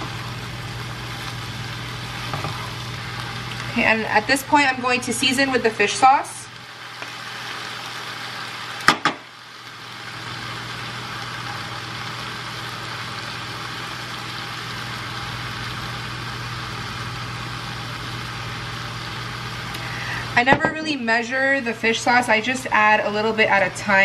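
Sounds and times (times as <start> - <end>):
low steady hum: 0.0 - 7.0
cabbage sizzling in a pan: 0.0 - 24.0.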